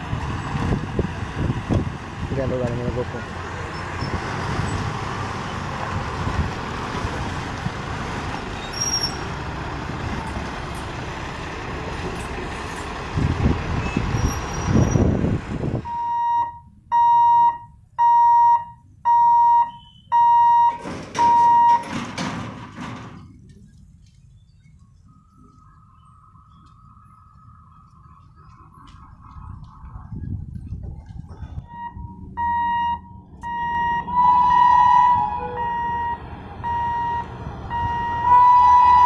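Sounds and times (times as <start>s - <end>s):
heavy trucks passing: 0.0s - 17.1s, 19.0s - 39.0s
electronic warning beeps: 15.9s - 21.9s, 31.6s - 34.3s, 35.6s - 38.3s.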